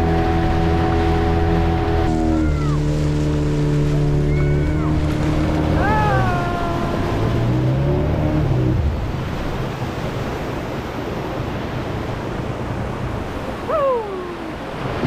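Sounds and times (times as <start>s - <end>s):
outboard motor running: 0.0s - 15.0s
surf washing around hull: 0.0s - 15.0s.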